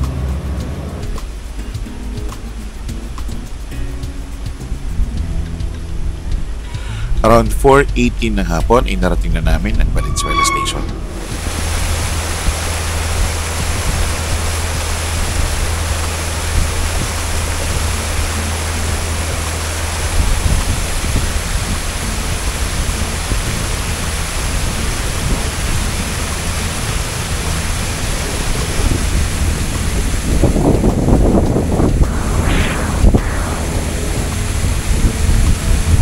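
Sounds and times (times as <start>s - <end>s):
boat engine humming: 9.7s - 20.2s
wind on microphone: 9.8s - 23.5s, 27.1s - 36.0s
wake water rushing: 11.0s - 36.0s.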